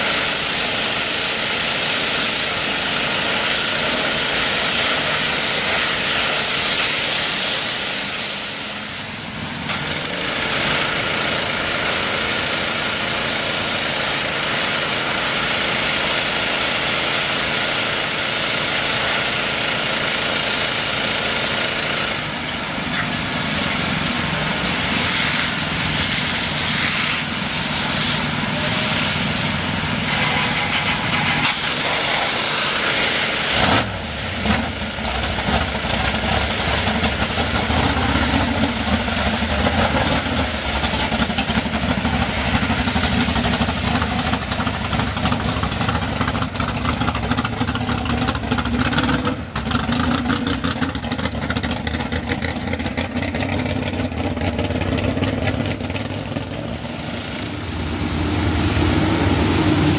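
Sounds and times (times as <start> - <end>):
pressure washer spray hissing: 0.0 - 17.0, 22.2 - 34.4
truck engine running: 0.0 - 59.9.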